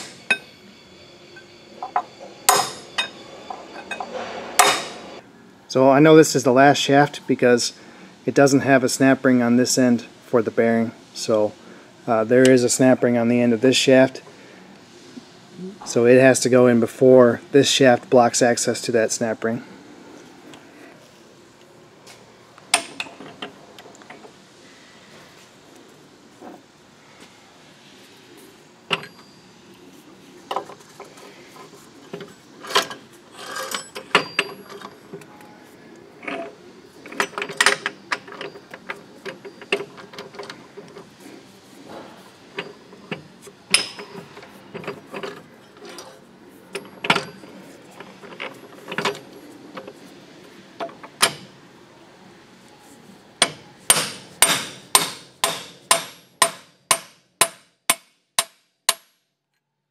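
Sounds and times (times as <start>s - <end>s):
metal gears clinking: 1.3s - 5.0s, 32.2s - 35.0s.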